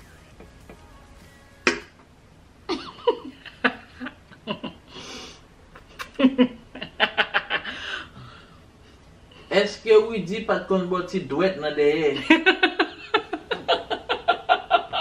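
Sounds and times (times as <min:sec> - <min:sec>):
woman laughing: 0:02.7 - 0:04.8, 0:12.3 - 0:15.0.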